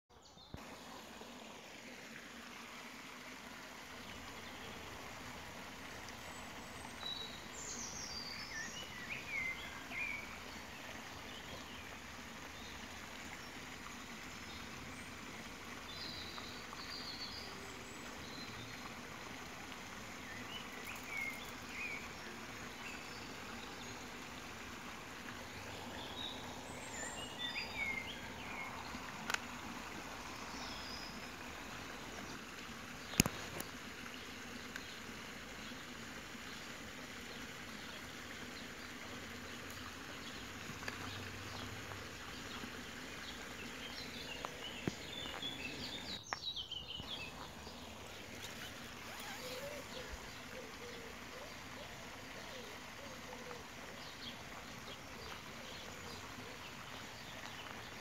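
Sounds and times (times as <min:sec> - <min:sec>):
steady background hiss: 0:00.2 - 0:58.0
birds chirping: 0:20.2 - 0:24.2, 0:25.2 - 0:32.4, 0:39.5 - 0:58.0.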